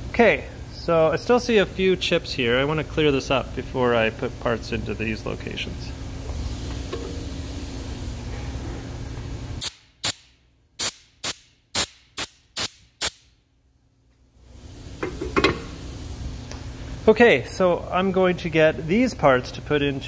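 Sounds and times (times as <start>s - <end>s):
steady background hum: 0.0s - 20.0s
compressed air blasts: 9.5s - 13.3s, 14.8s - 16.2s.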